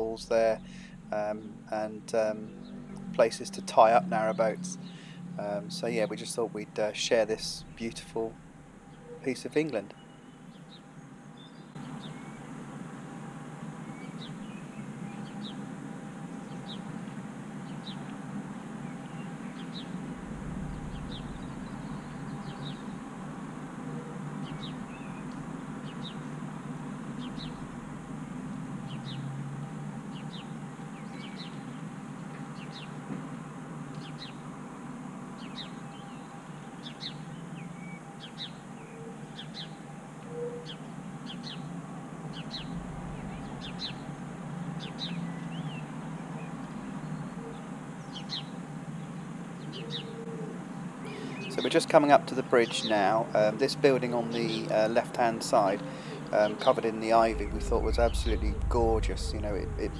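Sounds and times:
boat engine humming: 0.0s - 10.4s, 18.3s - 30.7s, 41.8s - 44.7s, 55.5s - 59.9s
small birds chirping: 0.0s - 12.7s, 13.7s - 29.4s, 30.0s - 33.0s, 33.9s - 34.5s, 35.4s - 53.5s.

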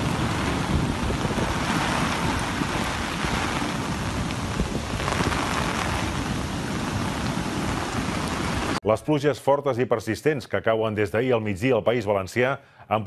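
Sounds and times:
heavy rain pouring onto water: 0.0s - 8.8s
wind gusting over microphone: 0.0s - 8.8s.

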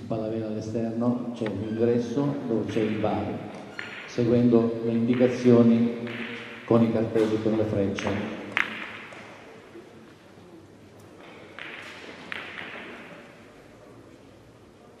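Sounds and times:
billiard balls rolling: 1.4s - 14.4s
billiard balls knocking: 2.5s - 9.5s, 11.2s - 13.4s.

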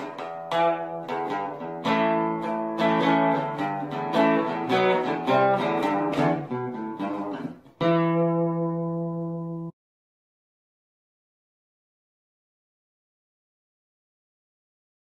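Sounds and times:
acoustic guitar playing: 0.0s - 9.8s.

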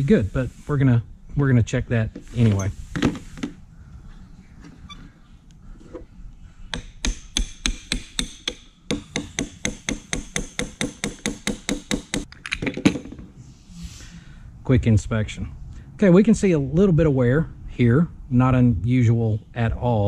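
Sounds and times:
hammer tapping steel punch: 6.7s - 12.3s.

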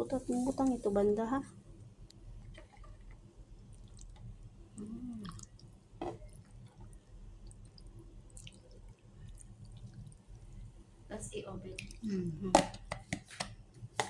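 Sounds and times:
sauce pouring with drips: 2.1s - 11.1s, 11.7s - 12.0s.

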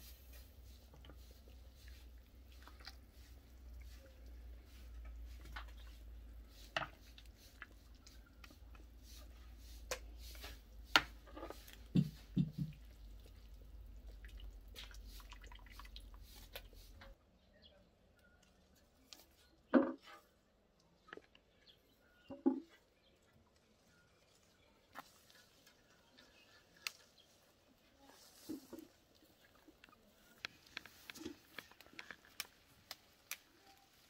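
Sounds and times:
broth dripping and splashing: 0.0s - 10.9s, 11.6s - 17.2s.

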